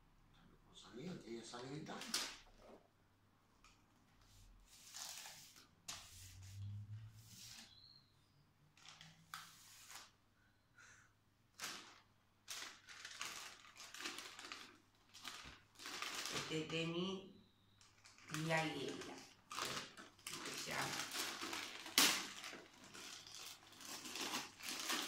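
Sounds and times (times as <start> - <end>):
wrapping paper rustling: 8.8 - 10.2, 11.6 - 16.8, 17.8 - 25.0.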